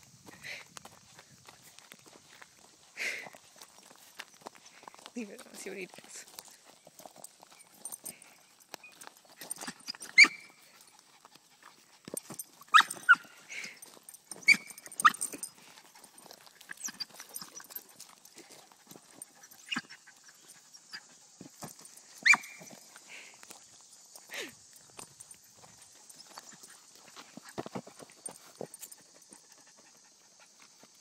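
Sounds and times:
small dog barking: 0:12.7 - 0:13.3.

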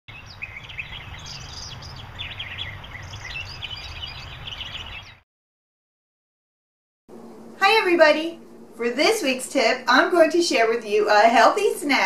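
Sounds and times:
small birds chirping: 0:00.1 - 0:05.2
low outdoor rumble: 0:07.1 - 0:12.0.

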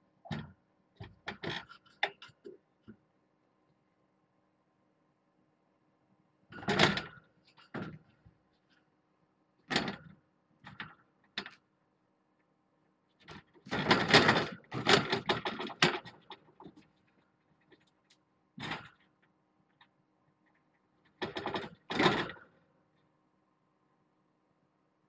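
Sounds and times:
fence rattling and clattering: 0:00.3 - 0:03.0, 0:06.5 - 0:08.8, 0:09.6 - 0:11.7, 0:13.1 - 0:22.6.

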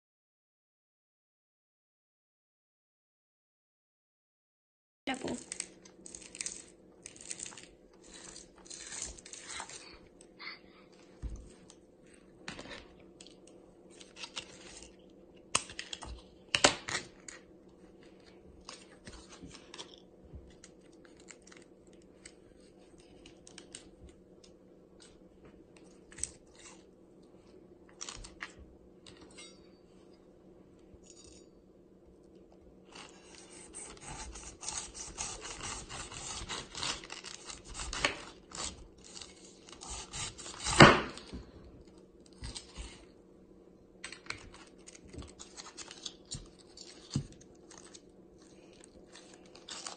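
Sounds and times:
faint steady hum: 0:05.1 - 0:49.9
knife sawing through rind: 0:33.1 - 0:40.9.

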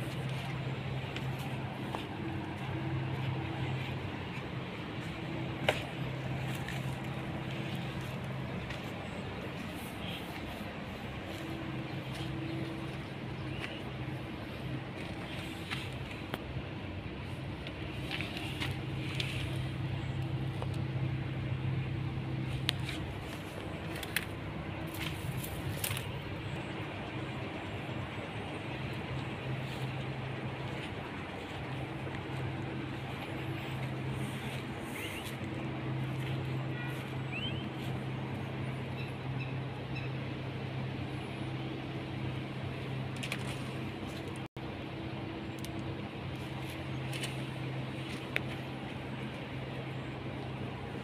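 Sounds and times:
low mechanical hum: 0:00.0 - 0:51.0
bird chirps: 0:36.8 - 0:37.9.

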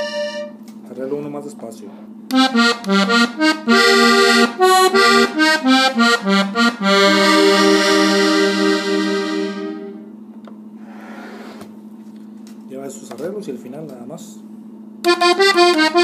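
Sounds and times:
button accordion melody: 0:00.0 - 0:00.6, 0:02.3 - 0:10.1, 0:15.0 - 0:16.0.

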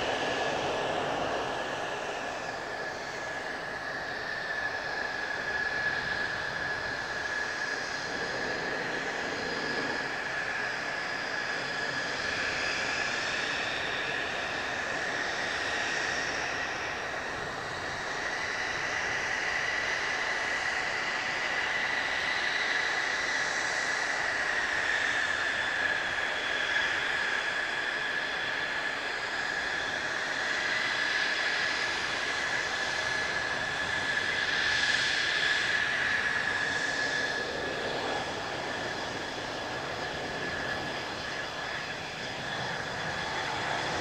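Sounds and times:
jet engine whine: 0:00.0 - 0:44.0.

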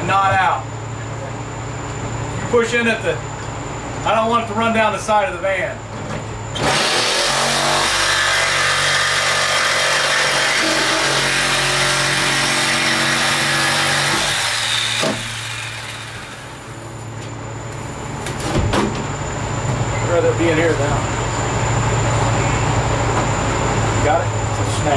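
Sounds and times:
jigsaw cutting sheet metal: 0:06.6 - 0:16.6.

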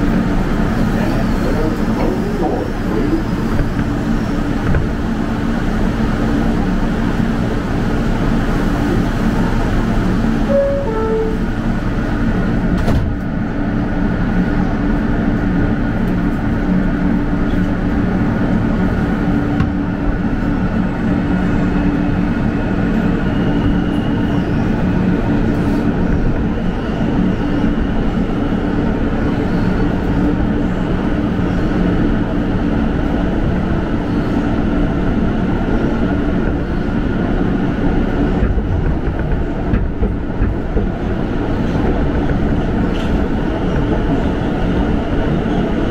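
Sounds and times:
wheels rumbling on rail: 0:00.0 - 0:45.9
high whine: 0:10.4 - 0:11.8.

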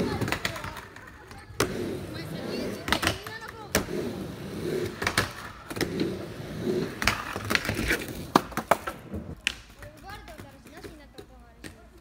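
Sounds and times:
skateboard clacking on ramp: 0:00.0 - 0:01.8, 0:02.4 - 0:03.9, 0:07.0 - 0:12.0
skateboard wheels rolling on ramp: 0:00.0 - 0:12.0.

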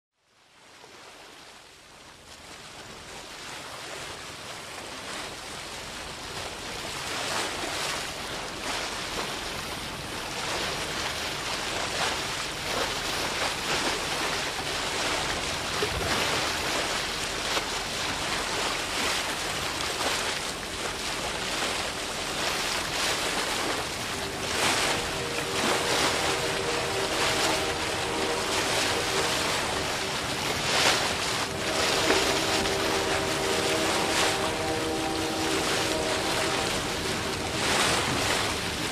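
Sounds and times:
sea surf rushing: 0:02.4 - 0:38.9
held low tones: 0:23.8 - 0:38.9.

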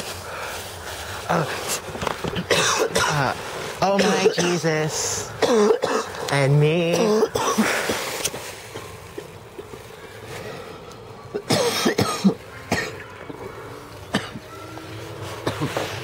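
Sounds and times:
man coughing: 0:02.4 - 0:06.2, 0:06.8 - 0:08.1, 0:11.3 - 0:13.0, 0:14.1 - 0:14.4, 0:15.4 - 0:16.0.

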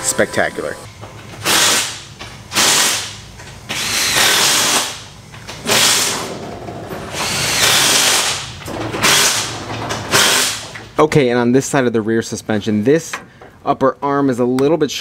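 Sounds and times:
impact wrench bursts: 0:01.4 - 0:06.3, 0:07.1 - 0:10.9.

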